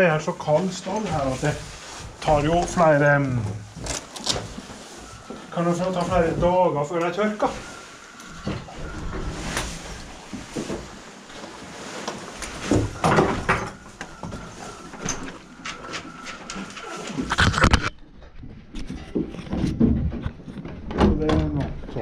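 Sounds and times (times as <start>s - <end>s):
fabric rug rustling: 0.0s - 17.5s.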